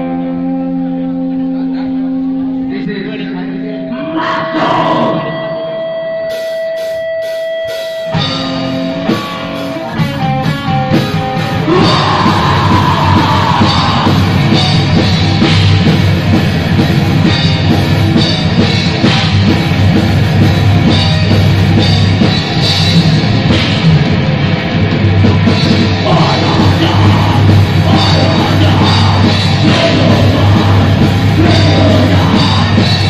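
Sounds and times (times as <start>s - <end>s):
metal band playing live: 0.0s - 33.0s.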